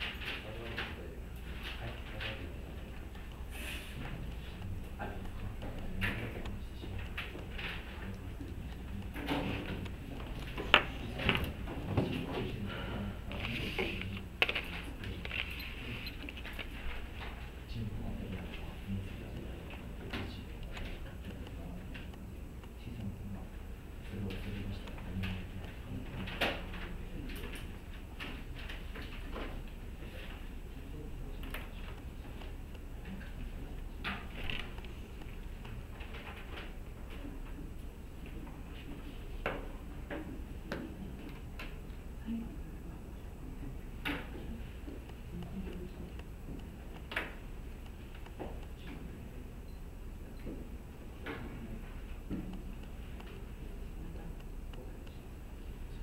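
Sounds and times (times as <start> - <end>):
pens and paper clicking and rustling: 0.0 - 12.6, 13.3 - 17.5, 24.2 - 30.4, 34.0 - 37.6
low room hum: 0.0 - 56.0.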